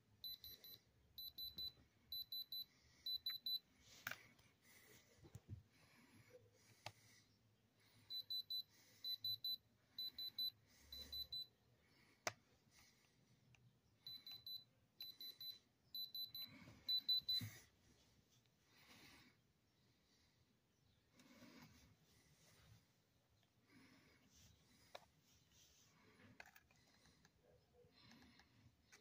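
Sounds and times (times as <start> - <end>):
detector beeping: 0.2 - 3.6, 8.1 - 11.5, 14.1 - 17.5.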